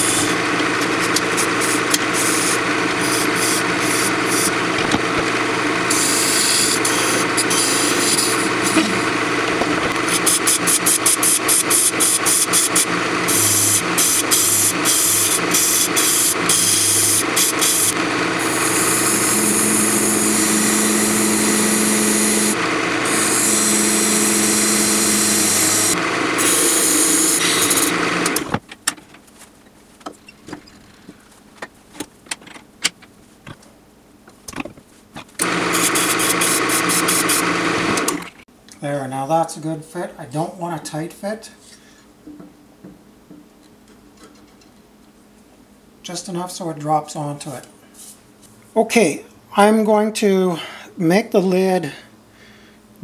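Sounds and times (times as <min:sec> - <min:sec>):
turning tool scraping wood: 0:00.0 - 0:28.5, 0:35.4 - 0:38.3
wood lathe humming: 0:00.0 - 0:28.5, 0:35.4 - 0:38.4.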